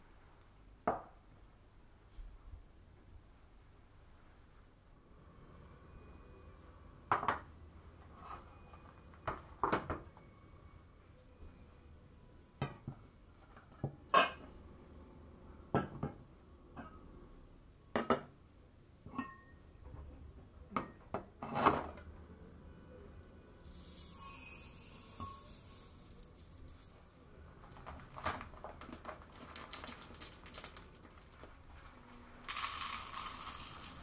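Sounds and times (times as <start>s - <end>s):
metal bowls clinking and knocking: 13.7s - 14.4s, 23.8s - 26.9s.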